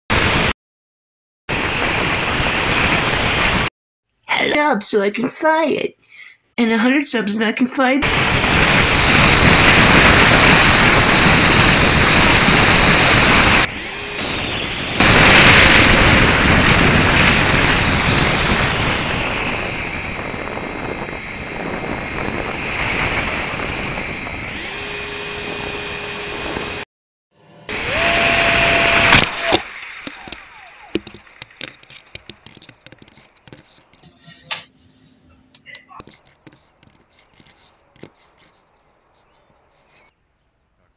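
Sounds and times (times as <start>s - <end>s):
electric ducted fan whine: 8.1s - 26.8s, 27.7s - 29.6s.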